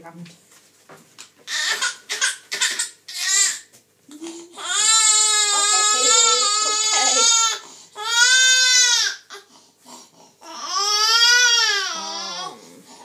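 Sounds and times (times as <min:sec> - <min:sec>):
baby crying: 0:01.5 - 0:03.7, 0:04.5 - 0:09.5, 0:10.4 - 0:12.6.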